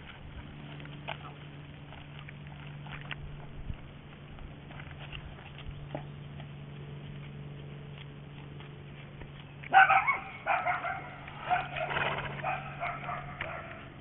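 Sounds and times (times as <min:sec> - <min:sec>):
steady low hum: 0:00.0 - 0:14.0
dog barking and yipping: 0:09.7 - 0:13.9.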